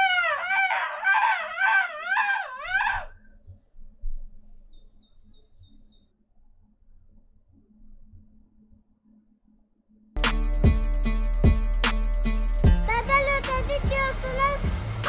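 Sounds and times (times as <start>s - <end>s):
woman shrieking: 0.0s - 3.1s.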